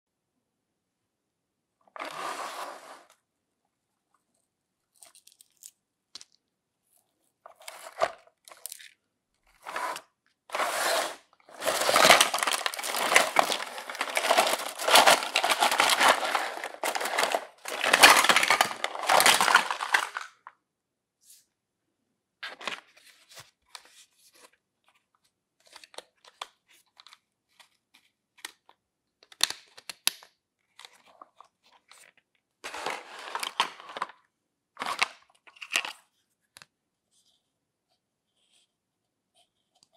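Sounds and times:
plastic mesh bag tearing: 0:10.5 - 0:20.3
plastic pieces clicking: 0:11.6 - 0:20.4.

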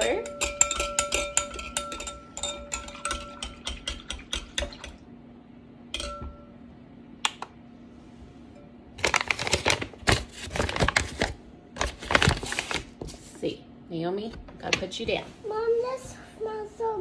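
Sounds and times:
utensil clinking against glass bowl: 0:00.0 - 0:05.0, 0:06.0 - 0:06.6
paper bag rustling: 0:09.0 - 0:13.3.

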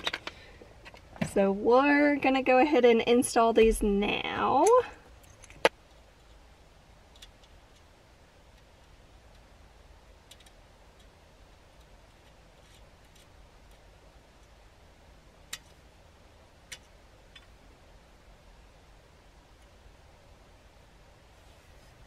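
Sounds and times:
faint clicks and knocks of hardware: 0:10.2 - 0:14.6.

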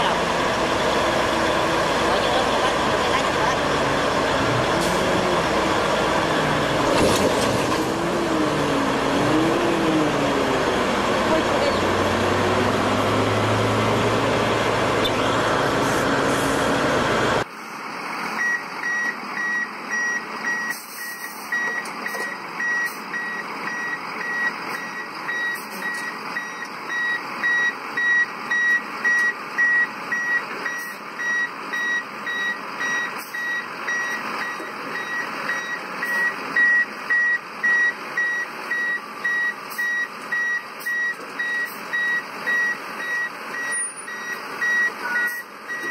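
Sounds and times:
dump truck engine running: 0:00.0 - 0:45.9
quiet vehicle noise: 0:14.6 - 0:45.9
truck reversing alarm beeping: 0:18.3 - 0:45.9.

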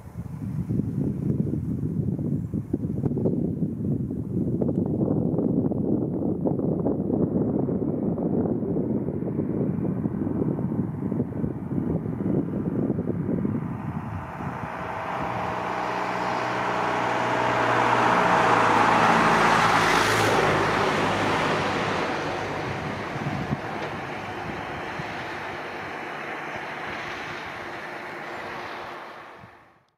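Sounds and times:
vehicle passing: 0:12.0 - 0:29.7.

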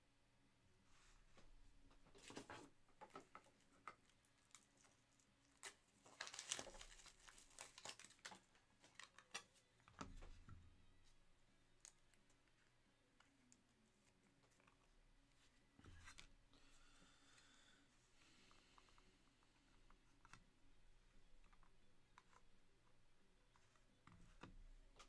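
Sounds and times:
cards and packaging rustling: 0:02.2 - 0:09.8.

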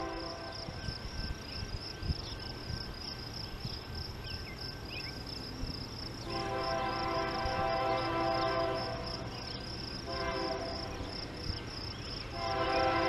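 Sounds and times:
insects trilling: 0:00.0 - 0:13.0
bird chirps: 0:00.8 - 0:06.4.

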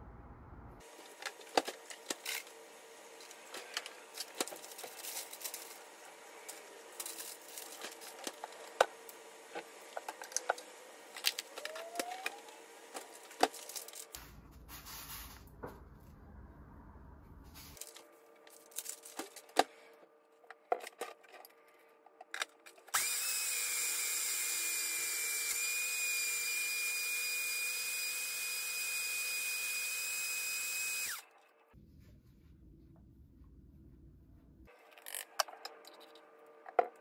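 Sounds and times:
blender motor whining: 0:08.4 - 0:13.4, 0:22.9 - 0:31.3.

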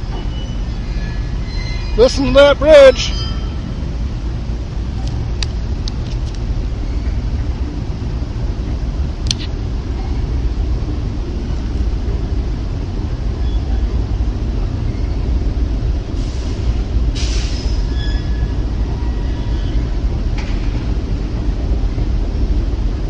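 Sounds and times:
high metallic squeals: 0:00.0 - 0:04.0, 0:17.3 - 0:19.9
train rumbling over bridge: 0:00.0 - 0:23.0.

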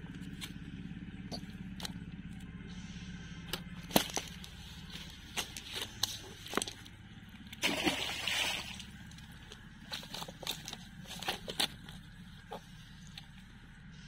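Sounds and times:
splashing: 0:07.5 - 0:11.7.

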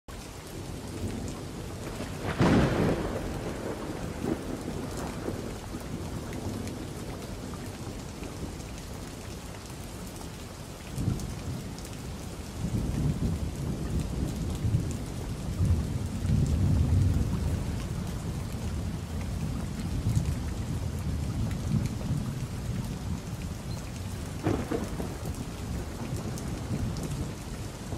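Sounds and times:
steady rain hissing: 0:00.1 - 0:27.9
low rolling thunder: 0:01.0 - 0:08.5, 0:12.6 - 0:23.4, 0:24.1 - 0:27.9
sharp thunderclap: 0:01.8 - 0:05.7, 0:24.4 - 0:27.9.

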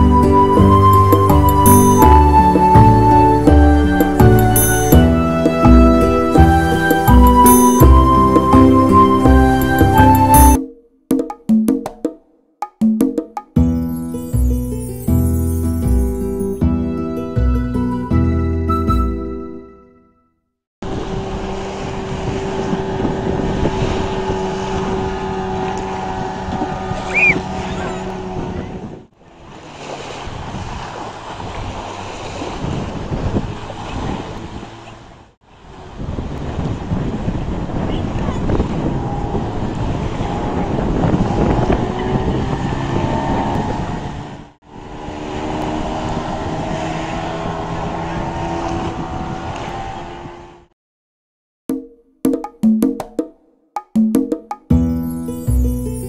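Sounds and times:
outboard motor running: 0:20.9 - 0:29.4, 0:32.9 - 0:35.3
wind on microphone: 0:20.9 - 0:44.5, 0:45.7 - 0:50.5
outboard motor at full throttle: 0:20.9 - 0:50.2.

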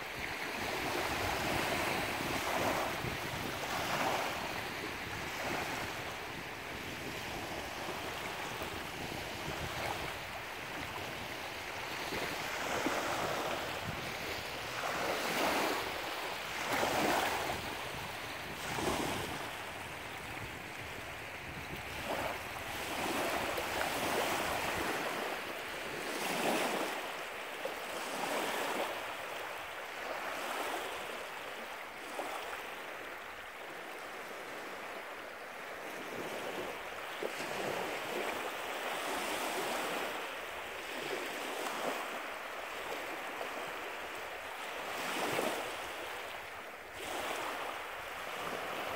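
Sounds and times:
waves lapping on shore: 0:00.0 - 0:48.9
wind buffeting microphone: 0:00.6 - 0:25.3.

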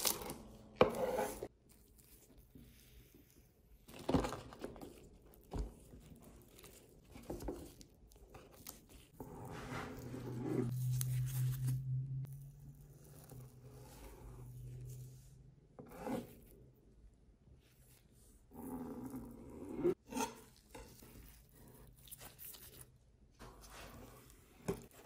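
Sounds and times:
steady low drone: 0:10.6 - 0:15.2.

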